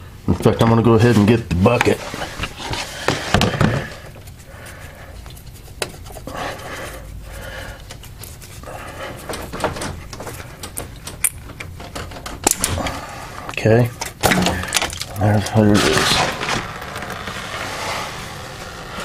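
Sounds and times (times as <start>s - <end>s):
hand gripping metal lines: 1.7s - 17.2s
person breathing heavily: 2.1s - 5.4s, 6.0s - 10.8s, 12.7s - 13.6s.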